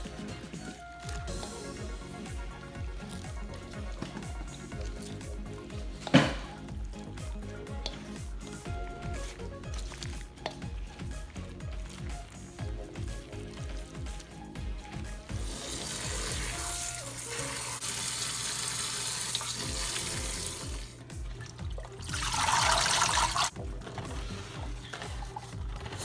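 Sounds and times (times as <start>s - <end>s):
background music with steady beat: 0.0s - 26.0s
tap water running into sink: 15.4s - 23.5s.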